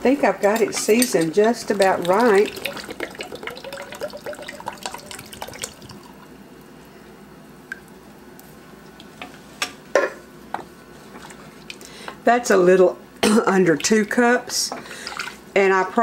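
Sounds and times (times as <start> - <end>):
milk pouring into pot: 1.4 - 6.4.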